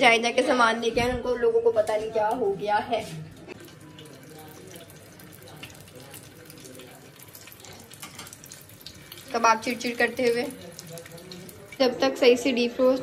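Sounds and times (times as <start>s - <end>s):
food sizzling in oil: 2.1s - 13.0s.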